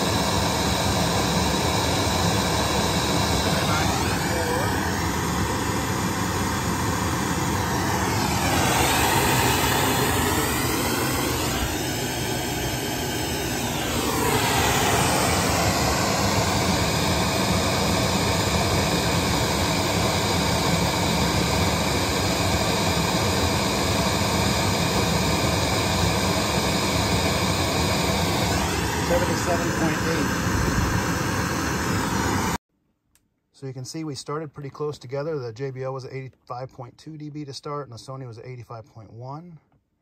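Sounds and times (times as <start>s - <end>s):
loudspeaker test noise hiss: 3.1s - 5.0s, 29.0s - 30.8s.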